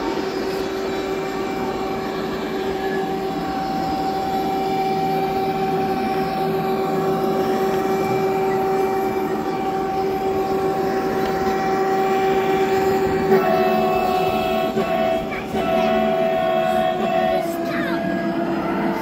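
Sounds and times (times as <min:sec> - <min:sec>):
model train electric whine: 0:00.0 - 0:19.0.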